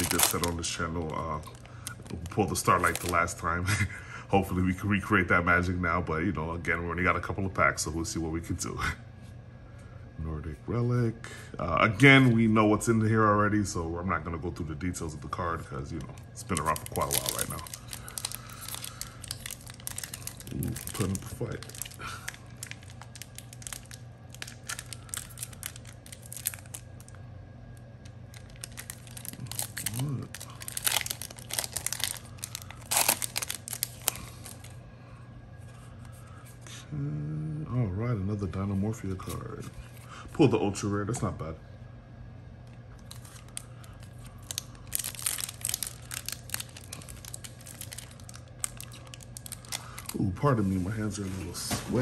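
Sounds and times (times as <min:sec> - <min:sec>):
foil tearing: 0:00.0 - 0:03.3, 0:16.5 - 0:26.8, 0:28.3 - 0:34.7, 0:43.1 - 0:52.0
foil wrapper crinkling: 0:00.0 - 0:03.5, 0:15.9 - 0:27.2, 0:28.0 - 0:34.8, 0:43.0 - 0:52.0.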